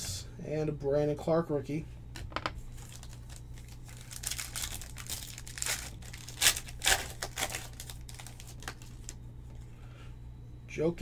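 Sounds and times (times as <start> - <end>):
foil wrapper tearing and crinkling: 2.8 - 9.2.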